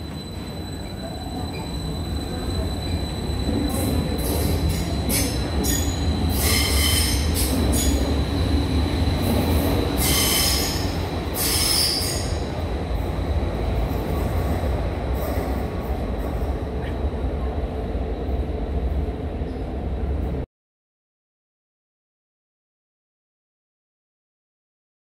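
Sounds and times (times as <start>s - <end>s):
wheel squeal: 0.0s - 8.0s, 10.0s - 12.4s
electric train rumbling: 0.0s - 20.5s.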